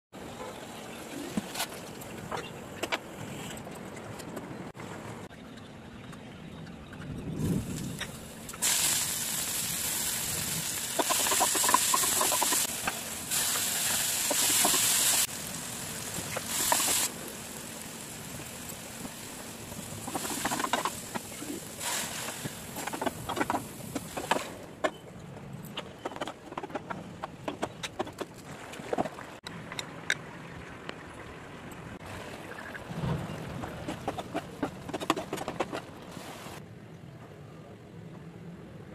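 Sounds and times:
hot oil sizzling in a pan: 0:08.5 - 0:23.1.

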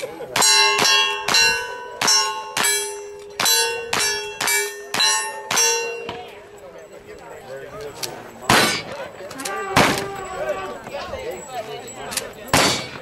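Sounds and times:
steel target ringing clang: 0:00.4 - 0:06.4, 0:08.5 - 0:09.0, 0:12.5 - 0:13.0
gunshots: 0:08.5 - 0:09.0, 0:12.6 - 0:13.0.

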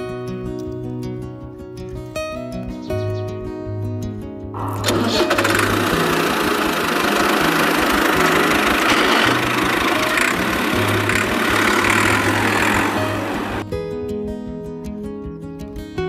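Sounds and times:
music: 0:00.0 - 0:16.0
tractor engine running: 0:04.6 - 0:13.6.

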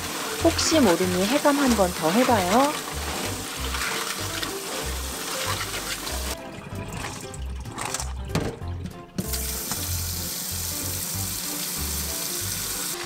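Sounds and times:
water poured into metal sink: 0:00.0 - 0:08.4, 0:09.2 - 0:13.0.

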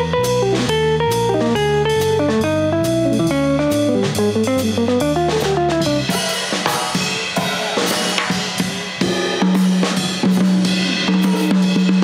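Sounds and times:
band playing: 0:00.0 - 0:12.0
drum kit fill: 0:00.0 - 0:12.0.

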